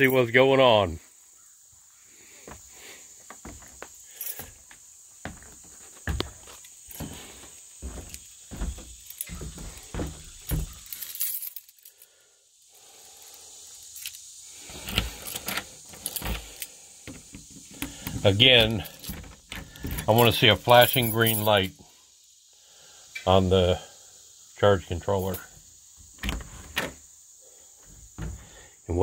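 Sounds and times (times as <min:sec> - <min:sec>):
footsteps on wooden boards: 0:02.4 - 0:10.8, 0:27.8 - 0:28.6
keys jingling at door lock: 0:03.5 - 0:04.6, 0:07.8 - 0:11.9, 0:14.8 - 0:16.7, 0:17.6 - 0:21.7.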